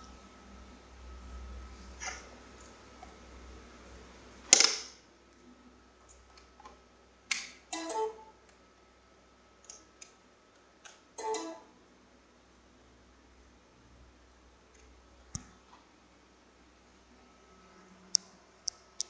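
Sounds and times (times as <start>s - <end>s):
cable and laptop clicks: 4.5s - 4.9s.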